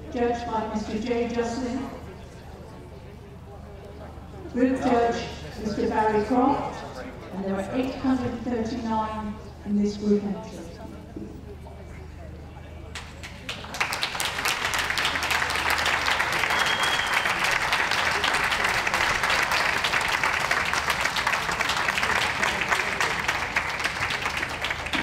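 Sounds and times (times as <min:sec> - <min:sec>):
audience applauding: 0:13.0 - 0:25.0.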